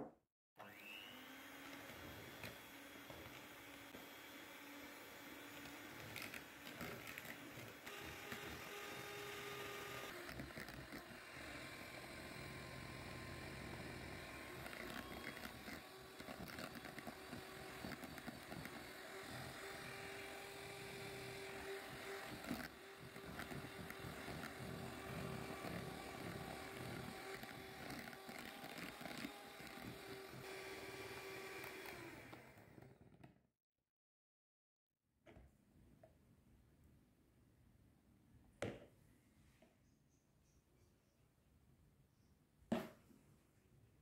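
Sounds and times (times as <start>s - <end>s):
electric hand mixer running: 0.6s - 33.1s.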